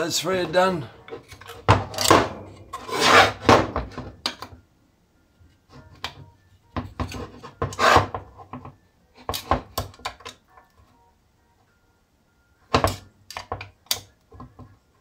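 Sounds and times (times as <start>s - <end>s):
metal scraping across bench: 1.9s - 4.0s, 7.2s - 8.2s.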